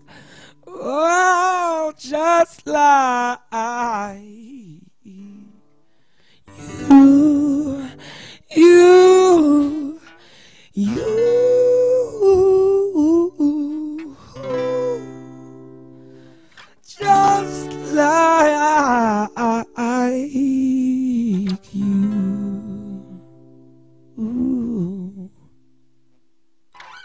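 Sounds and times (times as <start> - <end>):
strummed acoustic guitar: 5.6 - 25.8.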